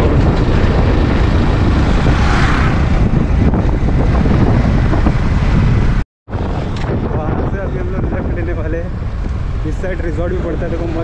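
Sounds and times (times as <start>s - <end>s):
motorcycle engine running: 0.0s - 6.0s
wind buffeting microphone: 0.0s - 11.0s.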